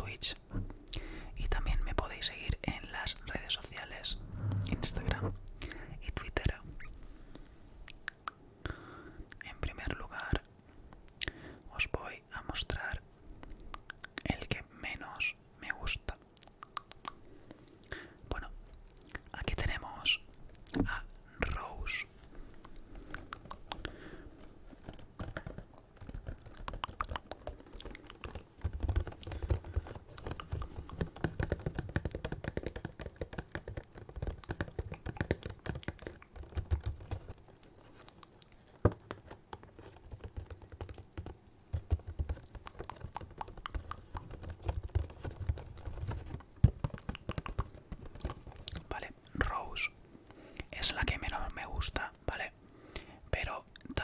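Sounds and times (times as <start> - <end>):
fingertips tapping cardboard box: 24.6 - 48.9.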